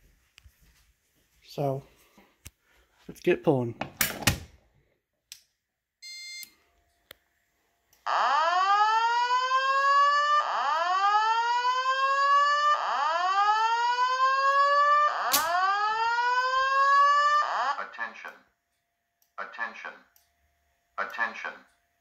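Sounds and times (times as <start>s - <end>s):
short beep: 6.0s - 6.6s
fire alarm rising whoops: 8.1s - 17.8s.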